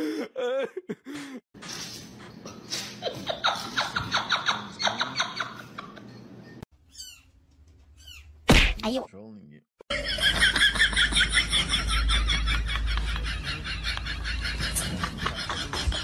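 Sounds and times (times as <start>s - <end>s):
people laughing: 3.0s - 6.3s, 9.9s - 16.0s.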